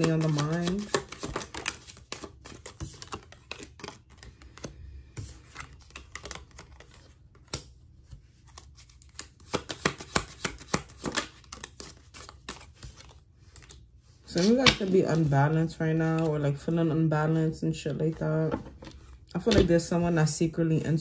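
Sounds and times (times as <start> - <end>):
cards shuffled by hand: 0.0 - 15.6.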